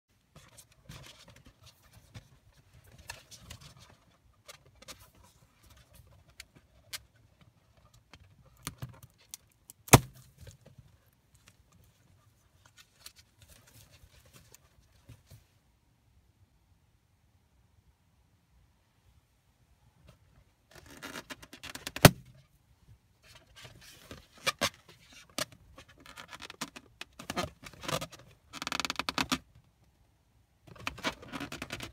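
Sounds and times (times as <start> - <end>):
balloon popping: 9.9 - 10.1.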